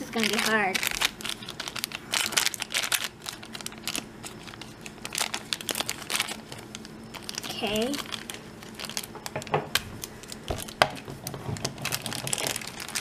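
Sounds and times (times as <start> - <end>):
plastic wrapper crinkling: 0.0 - 13.0
scissors cutting plastic: 8.9 - 13.0.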